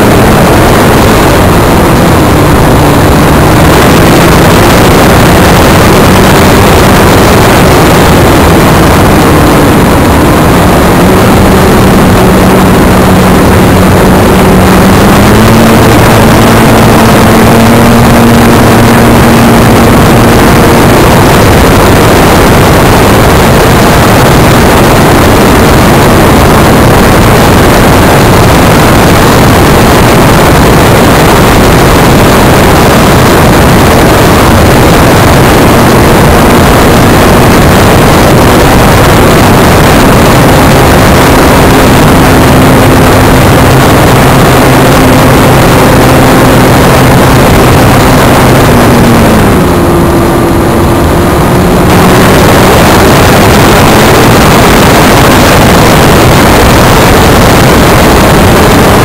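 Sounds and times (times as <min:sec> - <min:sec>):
wind rush: 0:00.0 - 0:59.0.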